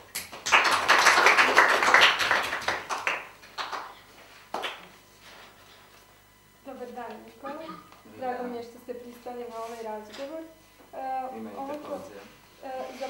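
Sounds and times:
small group applauding: 0:00.0 - 0:05.0.

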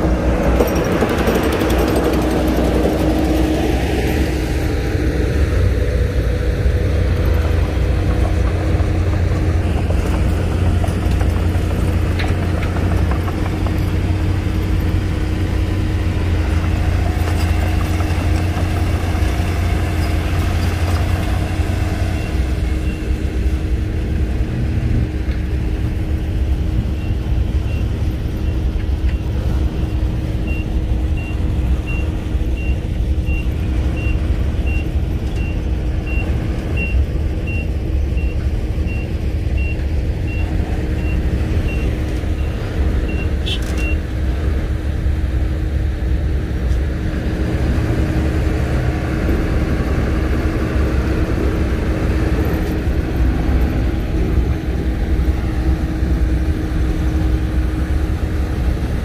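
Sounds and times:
bulldozer diesel engine rumbling: 0:00.0 - 0:59.0
reversing alarm beeps: 0:29.9 - 0:44.0.

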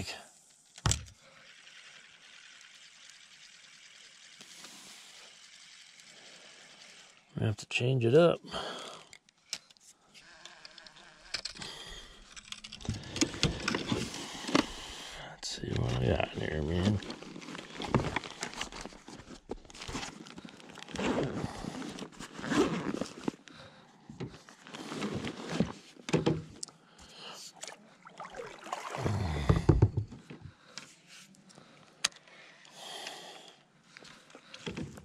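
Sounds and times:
fishing reel clicks: 0:01.2 - 0:07.3
rummaging in fabric bag: 0:15.7 - 0:23.5, 0:24.4 - 0:26.0.

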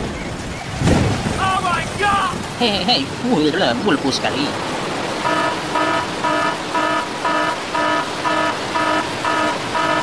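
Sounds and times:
rain hiss: 0:00.0 - 0:10.0
electronic warning beeps: 0:05.2 - 0:10.0.

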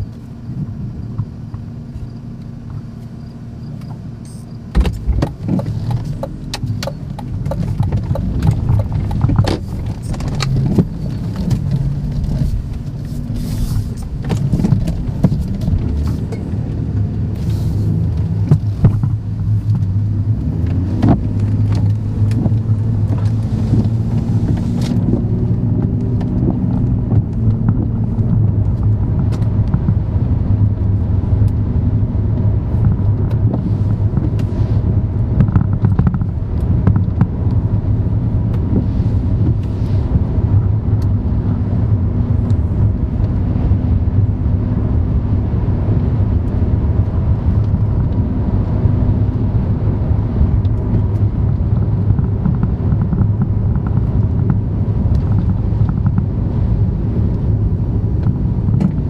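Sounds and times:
car road and engine rumble: 0:00.0 - 0:59.0.

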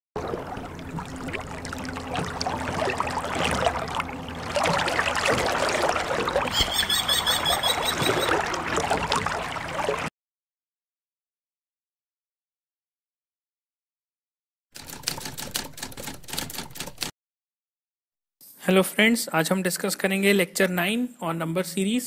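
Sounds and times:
water splashing and lapping: 0:00.2 - 0:10.1.

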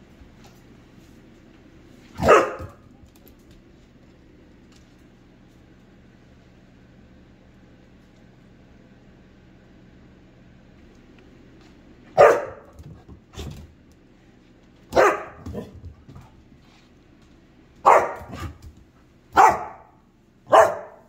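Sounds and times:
puppy barking: 0:02.2 - 0:02.8, 0:12.2 - 0:12.8, 0:14.9 - 0:15.7, 0:17.8 - 0:18.6, 0:19.3 - 0:21.0.

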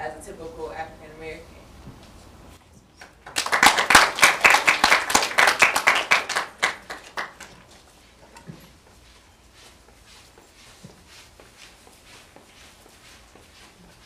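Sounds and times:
audience applauding: 0:03.0 - 0:07.6.

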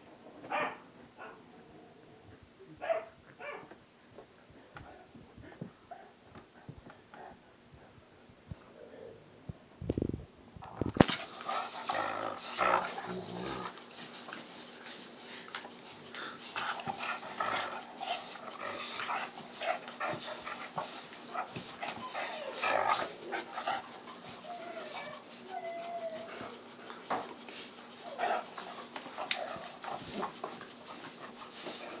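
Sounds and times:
dogs scuffling and mouthing: 0:10.6 - 0:32.0
dog whining: 0:21.8 - 0:26.8.

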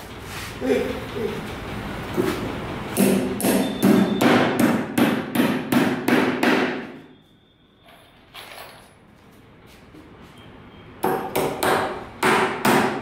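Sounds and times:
hammer driving nails into wood: 0:11.0 - 0:13.0.

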